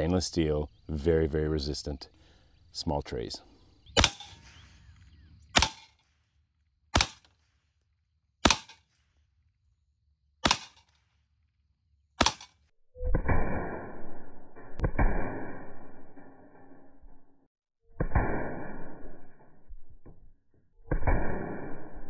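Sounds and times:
air rifle shots: 4.0s - 6.1s, 6.9s - 7.6s, 8.4s - 9.0s, 10.4s - 10.9s, 12.2s - 14.1s, 20.9s - 22.0s.

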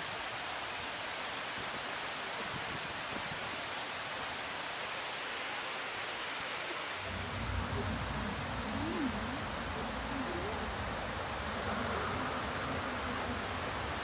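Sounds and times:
waterfall rushing: 0.0s - 14.0s
low rumble: 7.0s - 13.3s.

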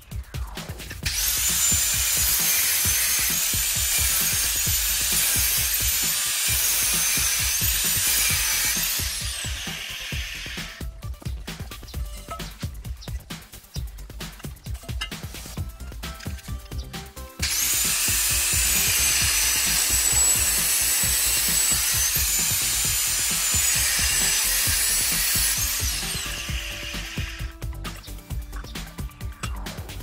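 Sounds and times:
angle grinder cutting metal pipe: 0.8s - 10.9s, 17.4s - 27.6s.

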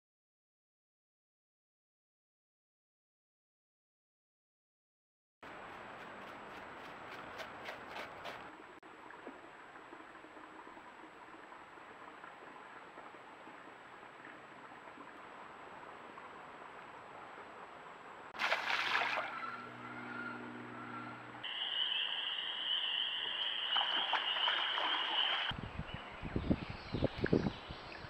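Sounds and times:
high-pitched calling chorus: 19.3s - 25.5s.

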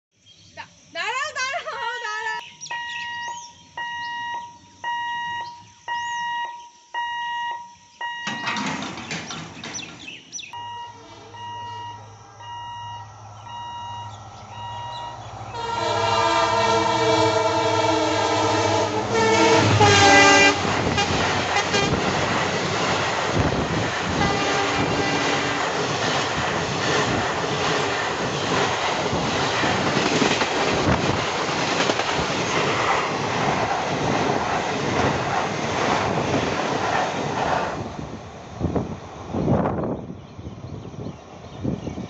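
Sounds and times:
level crossing warning beeps: 2.6s - 8.7s, 10.5s - 15.2s
passenger coaches passing: 8.2s - 40.0s
locomotive horn: 14.8s - 22.1s, 24.1s - 25.7s.

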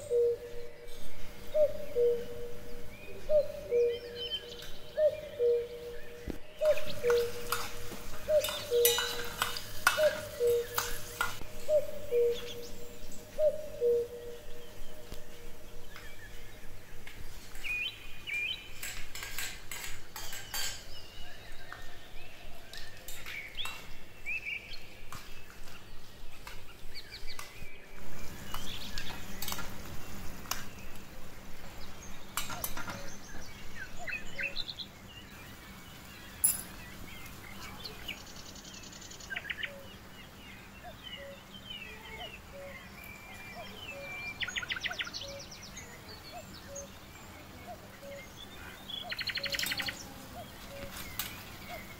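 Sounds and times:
birds chirping: 0.0s - 51.9s
metal spoon clinking on brass pot: 8.4s - 10.4s.

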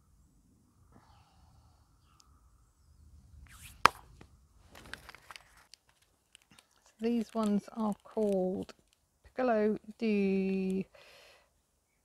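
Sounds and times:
paper rustle: 4.6s - 9.0s
seed packet ticks and rustles: 4.7s - 10.9s.

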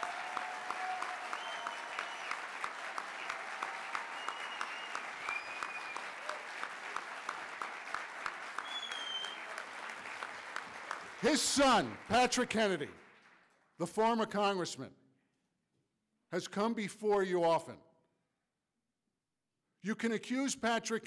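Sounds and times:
audience applauding: 0.0s - 13.7s.

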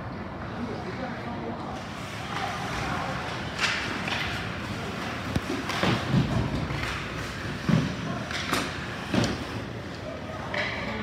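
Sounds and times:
ice rink ambience: 0.0s - 11.0s
hockey sticks and puck hitting boards: 2.2s - 11.0s.

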